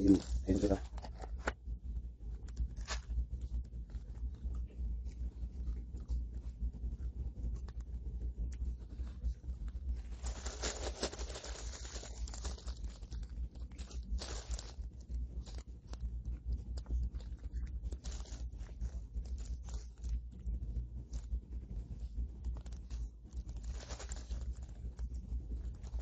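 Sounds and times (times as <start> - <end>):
plastic wrap crinkling: 0.0 - 1.6, 2.4 - 4.0, 10.0 - 21.3, 22.4 - 26.0
low hum: 0.0 - 26.0.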